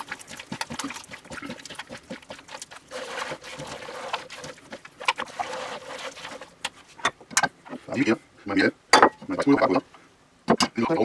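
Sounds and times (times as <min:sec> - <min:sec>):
dough squishing: 0:00.0 - 0:07.0.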